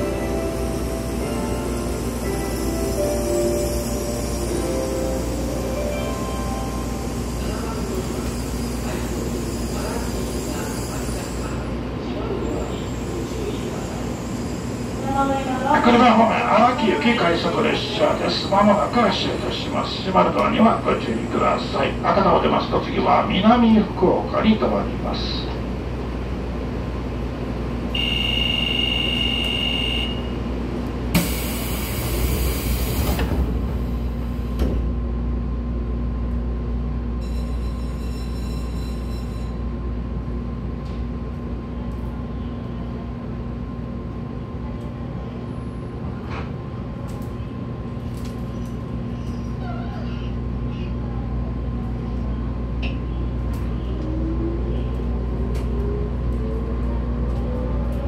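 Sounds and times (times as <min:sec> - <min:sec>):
train door chime: 0:00.0 - 0:09.3, 0:37.2 - 0:39.6
low train hum: 0:00.0 - 0:58.0
air hiss of doors closing: 0:31.1 - 0:34.9.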